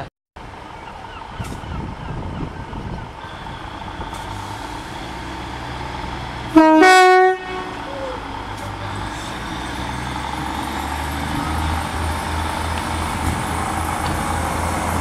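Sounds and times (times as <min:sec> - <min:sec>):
two-tone train horn: 0:06.5 - 0:08.0.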